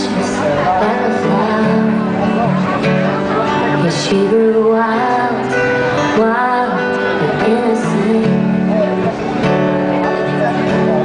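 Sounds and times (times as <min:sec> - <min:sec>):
woman singing: 0:00.0 - 0:02.4, 0:03.5 - 0:08.8
strummed acoustic guitar: 0:00.0 - 0:11.0.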